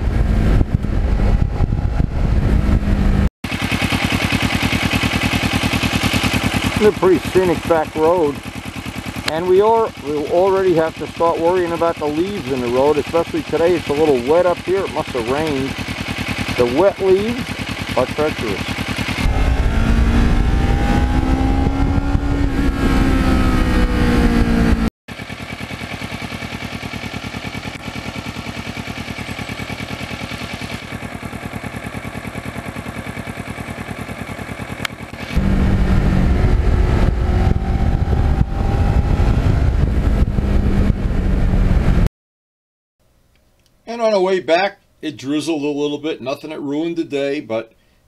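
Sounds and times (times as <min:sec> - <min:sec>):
motorcycle engine running: 0:00.0 - 0:42.1.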